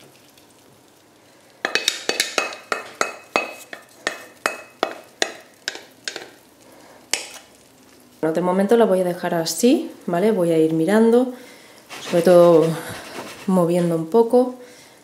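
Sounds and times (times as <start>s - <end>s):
faint frying sizzle: 0.0s - 15.0s
wooden spatula tapping: 1.6s - 6.4s, 7.1s - 7.5s.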